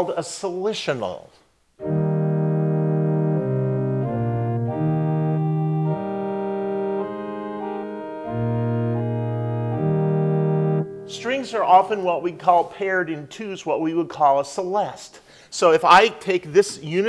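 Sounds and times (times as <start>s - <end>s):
organ playing sustained chords: 1.8s - 12.6s.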